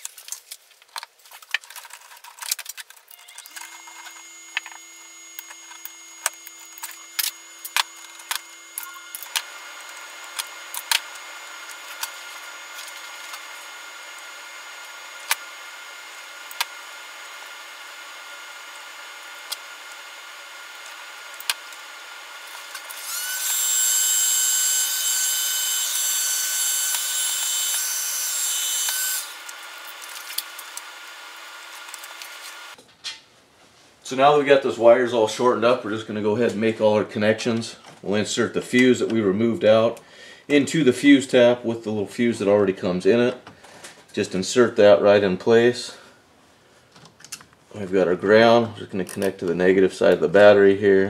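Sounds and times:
wire cutters clicking and snipping: 0:00.0 - 0:32.8
small electric motor whining: 0:03.0 - 0:32.8.

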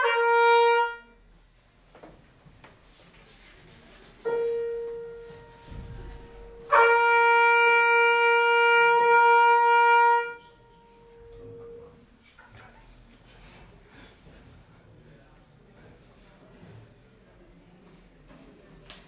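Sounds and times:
trumpet long held note: 0:00.0 - 0:01.2, 0:04.2 - 0:12.1
piano note: 0:04.2 - 0:06.9.

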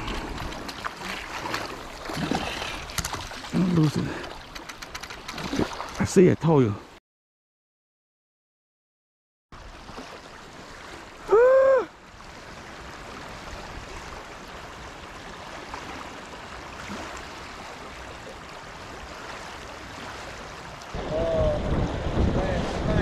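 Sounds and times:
fast-flowing river: 0:09.7 - 0:23.0.

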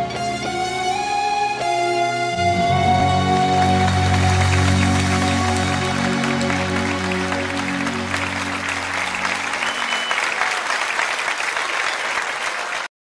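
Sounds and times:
closing music low notes: 0:01.6 - 0:09.9
applause: 0:03.1 - 0:12.9.

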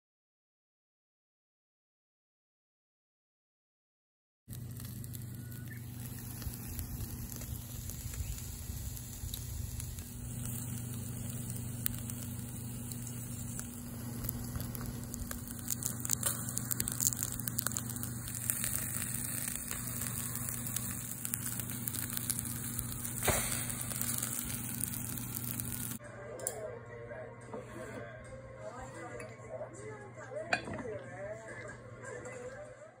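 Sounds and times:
eel sizzling on a grill: 0:04.5 - 0:26.0
constant low hum: 0:04.5 - 0:31.0.

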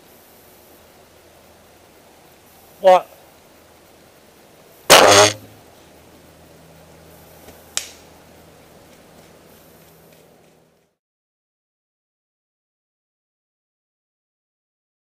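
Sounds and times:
bow release: 0:04.9 - 0:05.5
faint sharp click: 0:07.4 - 0:08.0.

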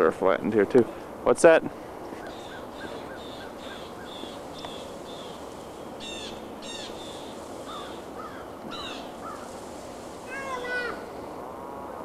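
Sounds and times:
harsh bird calls: 0:02.1 - 0:09.7.

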